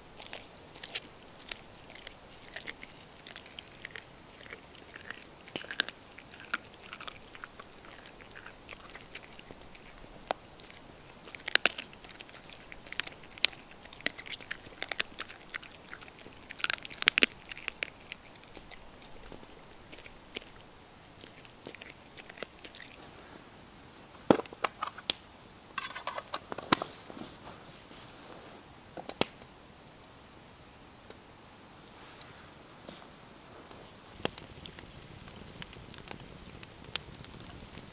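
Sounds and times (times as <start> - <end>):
dog chewing and crunching: 0.0 - 23.0, 34.0 - 37.9.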